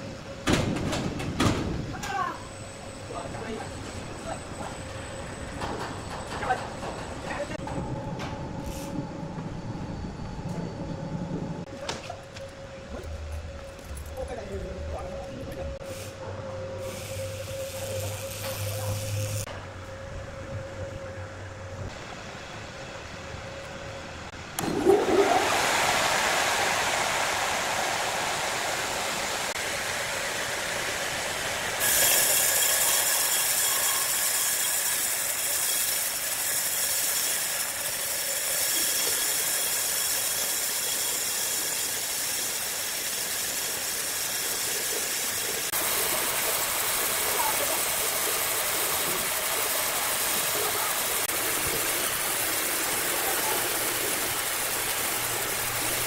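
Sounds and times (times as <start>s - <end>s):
low machine hum: 0.0s - 35.4s
bandsaw blade cutting through log: 31.8s - 44.7s.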